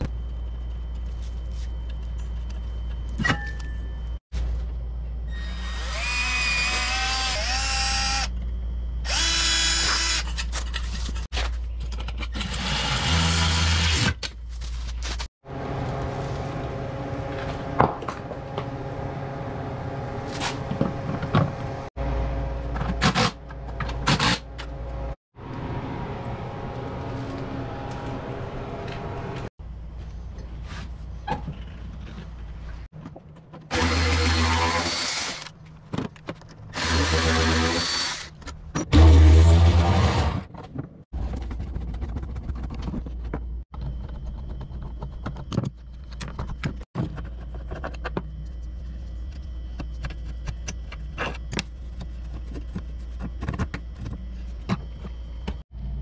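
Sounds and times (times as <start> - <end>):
cordless drill whining: 9.1 - 10.2
clicks and knocks of parts handled: 35.4 - 36.7.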